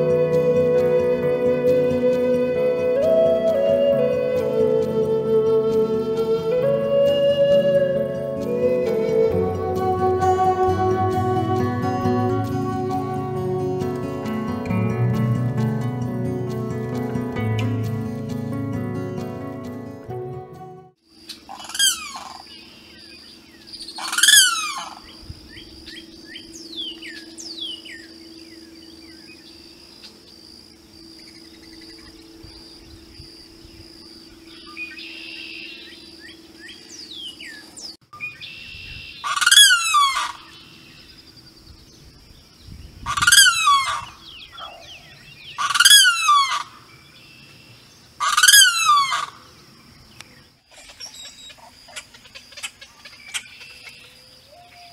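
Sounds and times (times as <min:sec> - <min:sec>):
high-pitched drone: 0:00.0 - 0:21.0
bird calling loudly: 0:21.4 - 0:22.7, 0:23.8 - 0:25.7, 0:38.3 - 0:40.9, 0:43.0 - 0:47.6, 0:48.2 - 0:49.5, 0:50.7 - 0:54.9.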